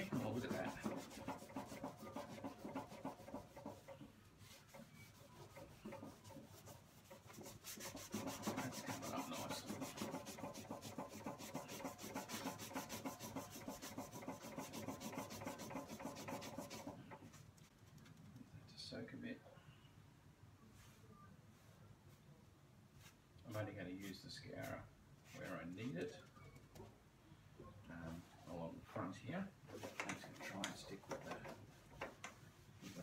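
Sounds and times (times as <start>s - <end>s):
scourer pad scrubbing steel: 0.0s - 17.0s.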